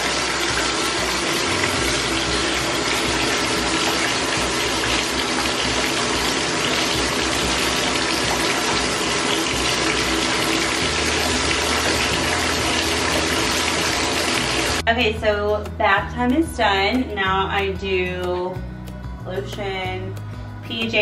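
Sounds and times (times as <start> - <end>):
tap water running into bathtub: 0.0 - 14.8.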